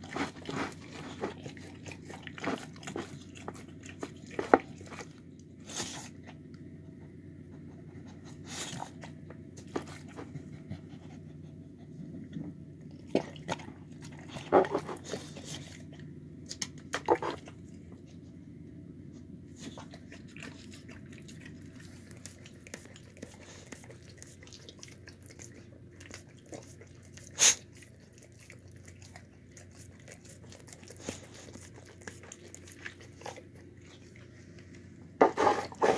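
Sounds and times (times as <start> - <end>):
dog licking and chewing: 0.0 - 6.5, 12.8 - 17.8, 19.6 - 34.8
steady low hum: 0.0 - 35.9.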